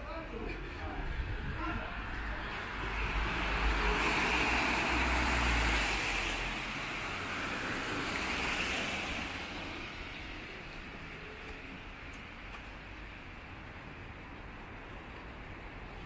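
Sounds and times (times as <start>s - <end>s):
low traffic rumble: 0.0s - 16.0s
tyres hissing on wet road: 2.7s - 11.2s.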